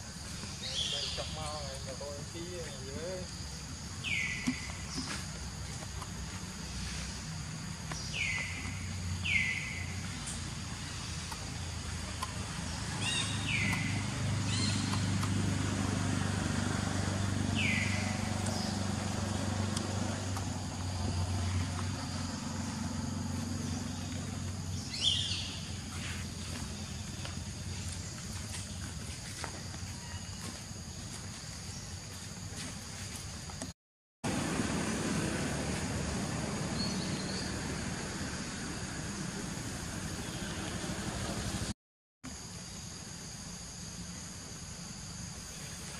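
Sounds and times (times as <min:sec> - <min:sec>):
bird chirping: 0:00.4 - 0:05.3, 0:07.9 - 0:15.8, 0:17.0 - 0:28.0
motor engine humming: 0:09.9 - 0:24.9
low rumble and hiss: 0:34.3 - 0:41.7.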